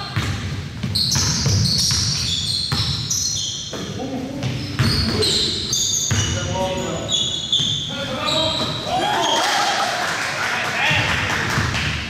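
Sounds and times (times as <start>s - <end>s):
basketball bouncing on court: 0.0s - 3.1s, 3.7s - 5.3s, 6.0s - 6.6s, 7.5s - 7.9s, 8.5s - 9.0s, 10.9s - 12.0s
sneakers squeaking on floor: 0.0s - 9.6s
players calling out: 4.0s - 11.3s.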